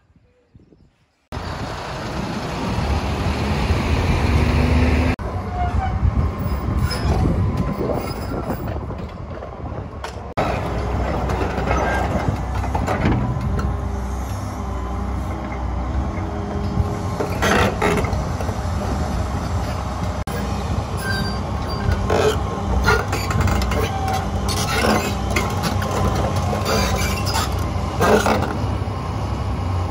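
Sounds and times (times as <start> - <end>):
excavator diesel engine rumbling: 1.3 - 29.9
steel tracks clanking and squealing: 5.2 - 28.9.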